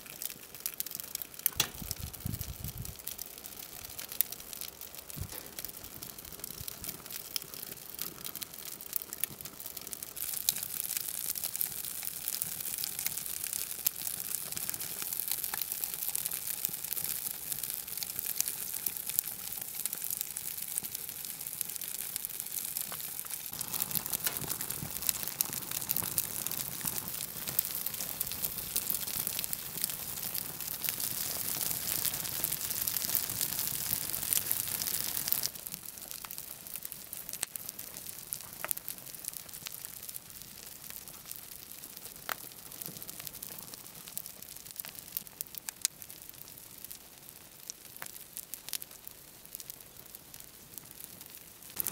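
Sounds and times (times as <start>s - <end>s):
burning plastic crackling and popping: 0.0s - 51.9s
fire hissing: 22.2s - 39.5s.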